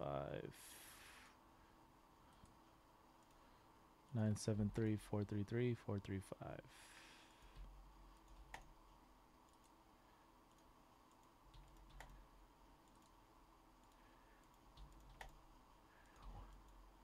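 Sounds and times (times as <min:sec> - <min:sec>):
faint computer clicks: 0:09.4 - 0:09.8, 0:10.4 - 0:12.2, 0:13.8 - 0:15.4.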